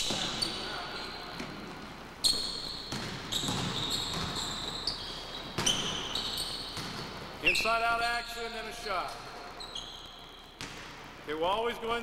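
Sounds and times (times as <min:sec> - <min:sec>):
basketball bouncing on hardwood floor: 0:02.3 - 0:04.7, 0:05.5 - 0:07.2, 0:10.6 - 0:11.0.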